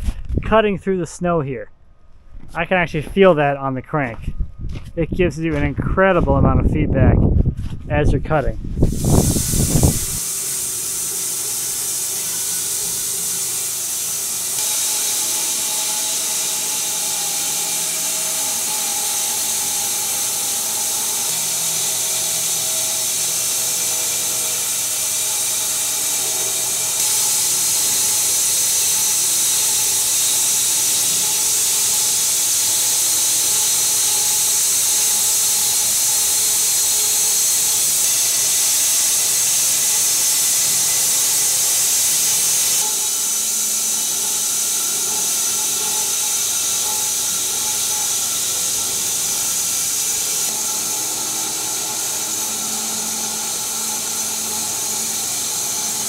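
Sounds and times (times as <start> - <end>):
bandsaw blade cutting log: 8.8 - 56.0.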